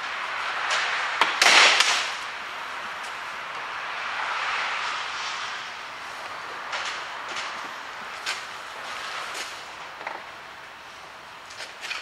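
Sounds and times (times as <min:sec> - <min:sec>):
steady hiss: 0:00.0 - 0:12.0.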